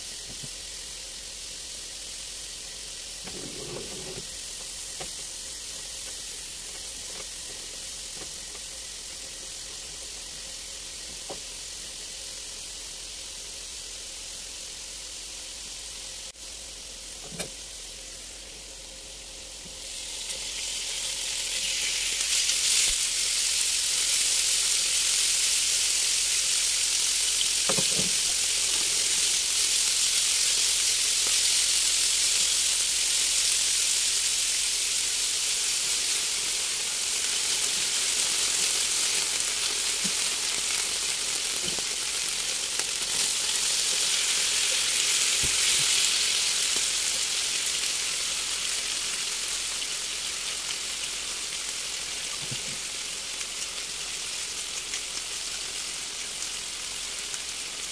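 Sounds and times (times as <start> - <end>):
food sizzling in a frying pan: 0.0 - 57.9.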